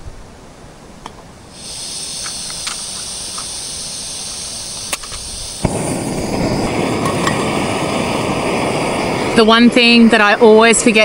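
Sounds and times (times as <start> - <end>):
igniter clicks: 1.0 - 5.8
burner flame rushing: 1.4 - 11.0
gas hissing from stove valve: 1.5 - 11.0.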